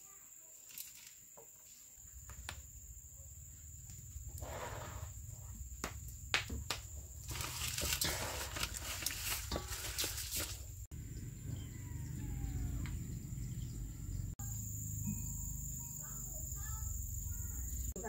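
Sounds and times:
plastic glove rustling: 7.2s - 10.9s.

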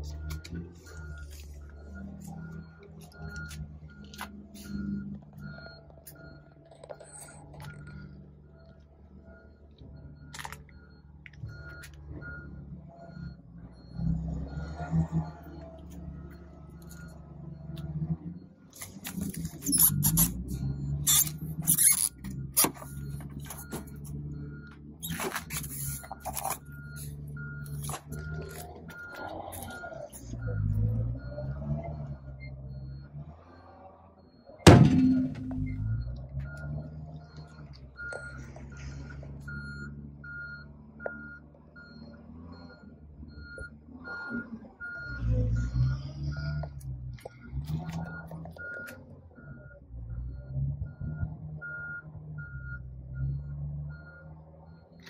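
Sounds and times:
truck engine idling: 0.0s - 33.1s, 34.2s - 45.1s
electronic warning beeps: 0.0s - 55.0s.

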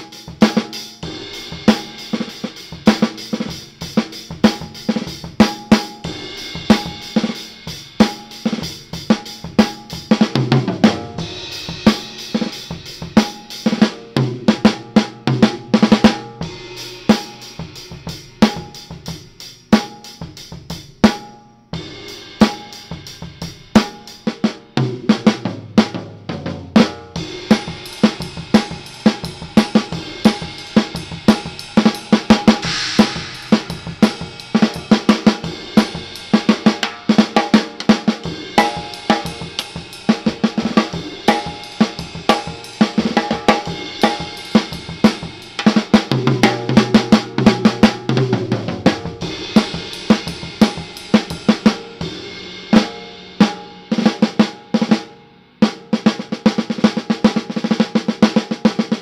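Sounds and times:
cymbals: 0.0s - 24.8s, 26.8s - 55.9s
lower-pitched drum fill: 0.0s - 59.0s
snare drum: 23.8s - 51.9s
bass drum: 24.8s - 36.9s.

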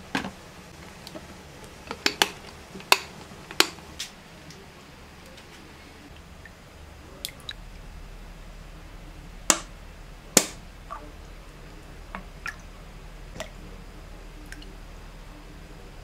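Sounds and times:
sharp knocks: 9.5s - 9.7s, 10.4s - 10.6s.

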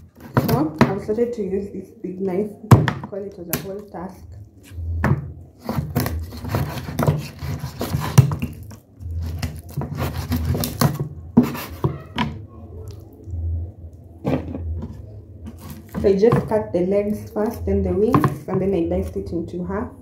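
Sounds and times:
cleaver chopping on wooden board: 5.0s - 8.6s, 9.3s - 12.1s.

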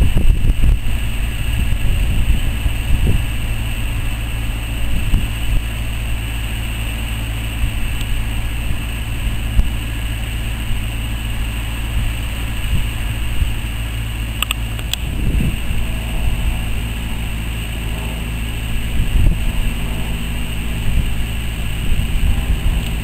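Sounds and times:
steam locomotive low rumble: 0.0s - 23.0s.

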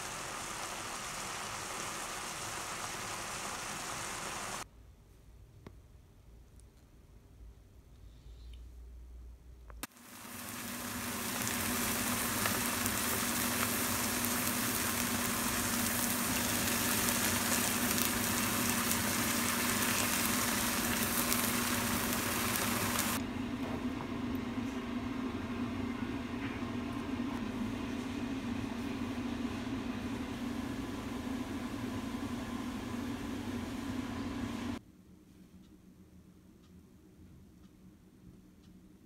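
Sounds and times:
tofu sizzling in oil: 0.0s - 4.6s, 9.8s - 23.2s.

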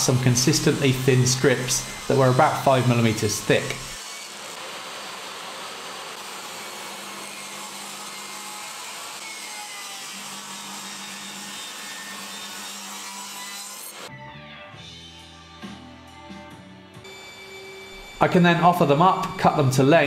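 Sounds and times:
table saw ripping wood: 0.0s - 14.1s.

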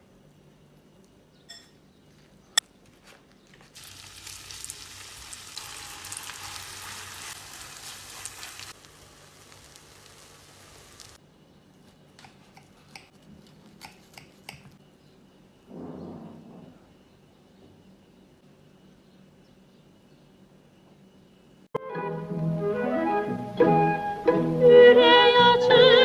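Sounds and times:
food sizzling in a pan: 3.8s - 11.2s.

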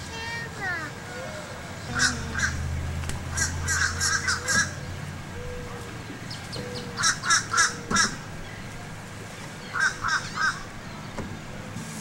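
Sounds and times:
bird calling: 1.1s - 8.7s, 9.6s - 11.1s.

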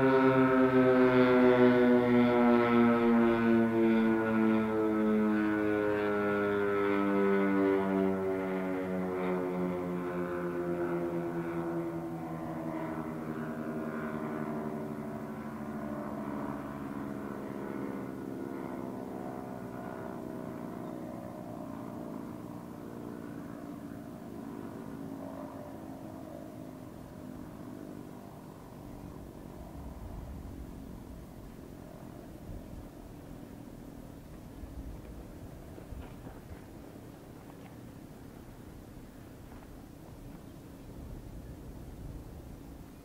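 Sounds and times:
warning siren winding down: 0.0s - 20.8s.

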